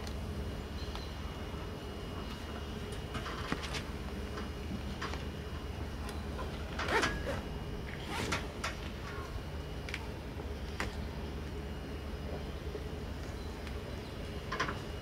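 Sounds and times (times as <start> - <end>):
steady background hum: 0.0 - 15.0
tent cover scraping and rustling: 8.0 - 8.5.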